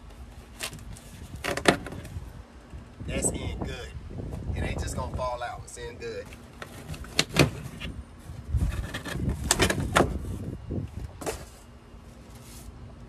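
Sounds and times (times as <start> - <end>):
cardboard scraping and rustling: 0.1 - 2.2, 6.2 - 12.8.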